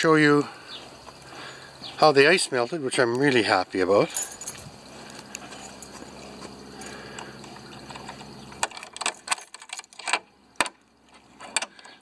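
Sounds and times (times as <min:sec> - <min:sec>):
keys jangling against padlock: 0:04.0 - 0:06.0, 0:07.8 - 0:10.2
lock clicking: 0:07.8 - 0:10.8.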